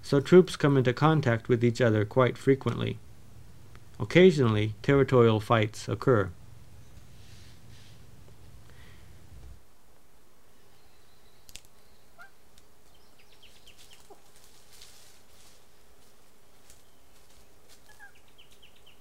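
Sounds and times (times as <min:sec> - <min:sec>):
faint steady hum: 0:00.0 - 0:19.0
bird chirps: 0:10.6 - 0:14.2, 0:17.9 - 0:19.0.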